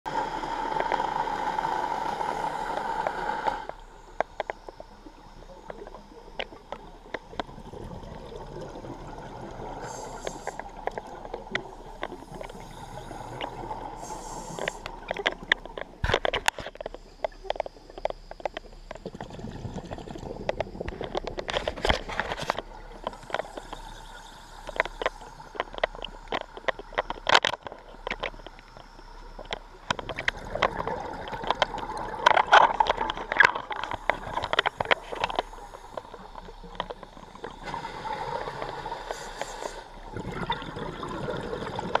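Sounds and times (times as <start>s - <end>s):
gurgling exhaled bubbles: 5.0s - 16.3s, 18.8s - 27.0s, 29.3s - 42.0s
scuba regulator hissing inhalations: 9.8s - 10.7s, 12.2s - 15.0s, 37.6s - 40.0s.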